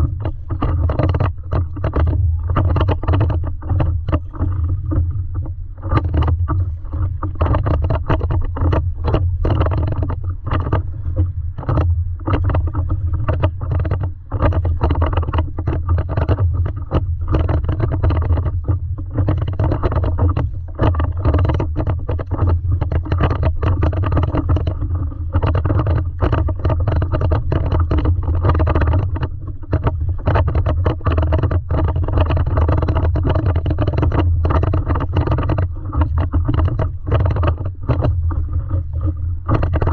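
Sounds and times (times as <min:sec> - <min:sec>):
water slapping against paddleboard: 0:00.0 - 0:39.9.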